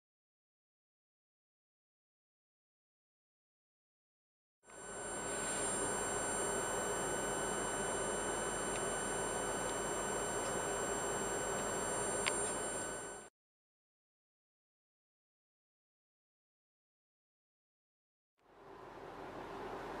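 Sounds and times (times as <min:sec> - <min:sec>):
electrical whine with hiss: 0:04.7 - 0:13.3.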